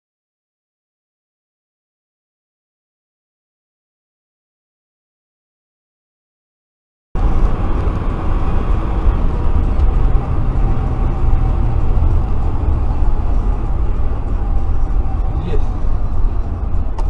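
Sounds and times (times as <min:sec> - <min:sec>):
road and engine noise in car: 0:07.2 - 0:17.0.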